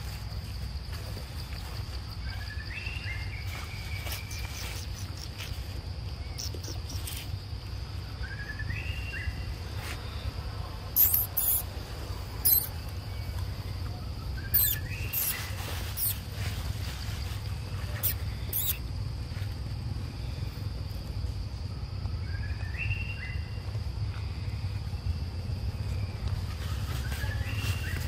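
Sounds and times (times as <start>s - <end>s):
high insect drone: 0.0s - 28.0s
rising whistled call: 11.0s - 11.7s, 12.4s - 12.7s, 14.4s - 16.2s, 18.0s - 18.8s
dry leaf litter crackling: 14.5s - 18.7s, 26.4s - 28.0s.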